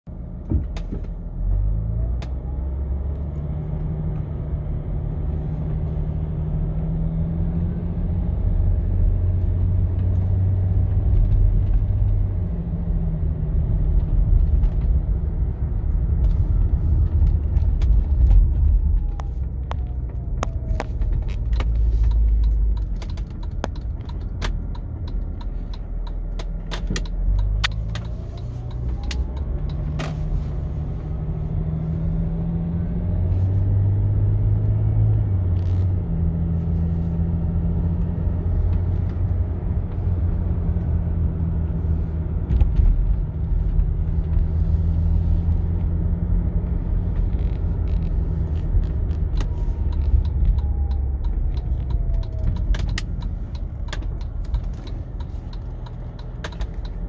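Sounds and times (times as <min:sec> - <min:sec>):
road rumble: 0:00.0 - 0:57.0
diesel engine drone: 0:00.1 - 0:57.0
sharp clicks and knocks: 0:17.1 - 0:30.2, 0:47.2 - 0:57.0.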